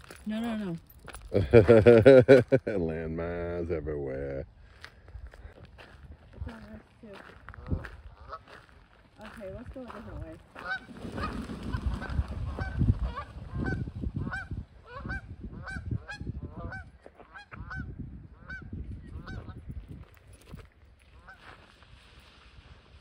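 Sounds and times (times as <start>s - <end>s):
geese honking: 8.0s - 8.6s, 10.6s - 11.4s, 12.0s - 19.6s.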